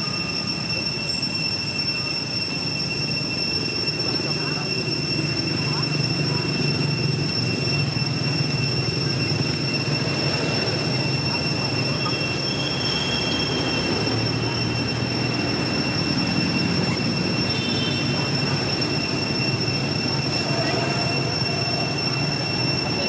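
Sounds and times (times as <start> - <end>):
faint high tones: 0.0 - 23.0
high-pitched whine: 0.0 - 23.0.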